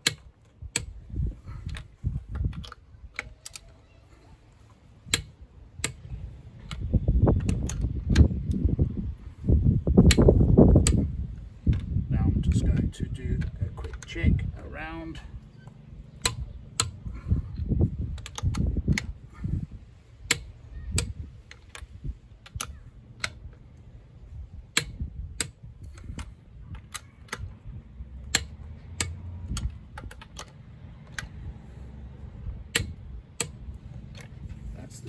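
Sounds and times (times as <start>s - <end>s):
torque wrench clicks: 20.3s - 23.6s, 32.7s - 34.4s.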